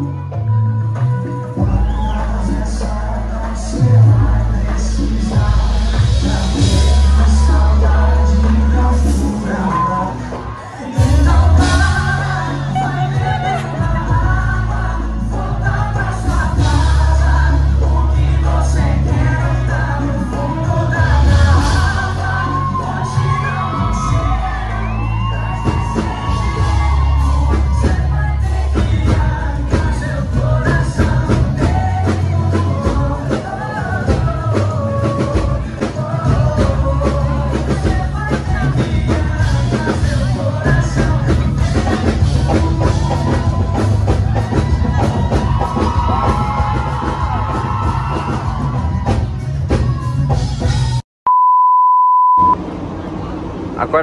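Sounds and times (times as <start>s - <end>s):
man singing: 0.0s - 48.8s
live band playing: 0.0s - 51.0s
crowd shouting and whooping: 1.3s - 51.0s
loud steady beep tone: 51.3s - 52.6s.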